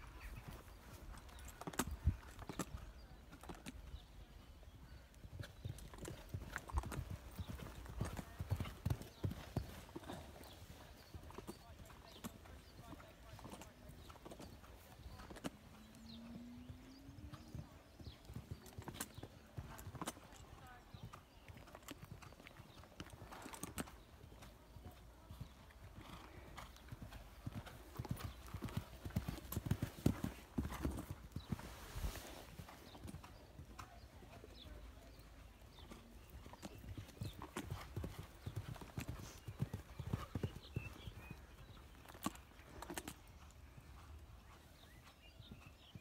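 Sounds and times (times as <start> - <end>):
hooves cantering on sand: 5.1 - 46.0
hoofbeats on sand: 24.4 - 43.2.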